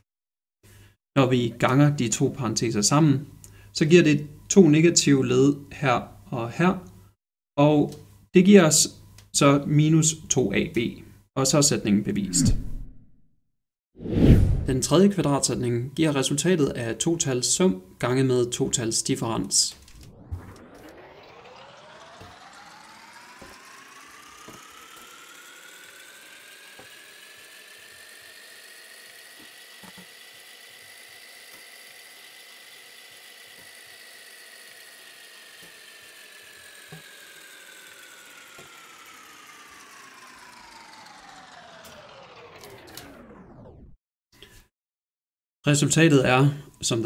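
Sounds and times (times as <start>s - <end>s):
synth sweep tone: 12.2s - 13.1s, 19.1s - 29.3s.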